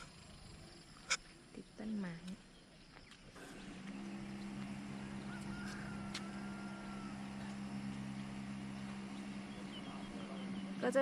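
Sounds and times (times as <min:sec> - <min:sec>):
low machine hum: 0:00.0 - 0:11.0.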